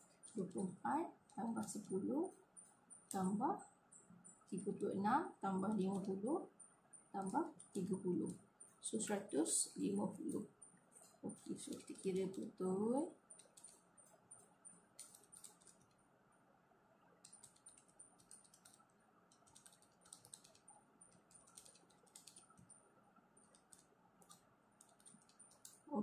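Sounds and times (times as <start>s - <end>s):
calculator buttons clicking: 5.6s - 6.2s, 11.3s - 13.8s, 15.0s - 15.9s, 17.2s - 18.8s, 19.4s - 22.7s, 23.4s - 25.9s.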